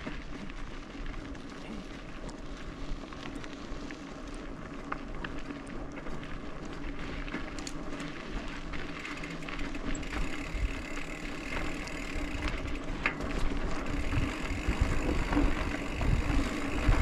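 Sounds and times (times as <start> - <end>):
bike clicks and rattles: 0.0 - 17.0
tyres on dirt and gravel: 0.0 - 17.0
wind on microphone: 13.9 - 17.0.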